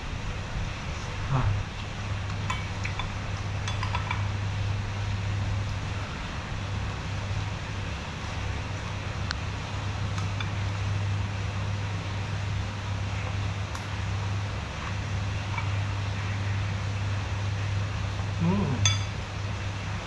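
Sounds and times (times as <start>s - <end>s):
mouth sound: 18.4s - 18.9s
metal spoon clinking on glass bowl: 18.8s - 19.2s.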